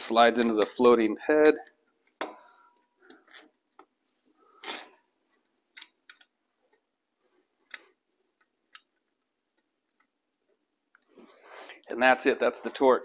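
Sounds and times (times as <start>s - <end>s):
faint clicks and taps: 5.3s - 11.2s.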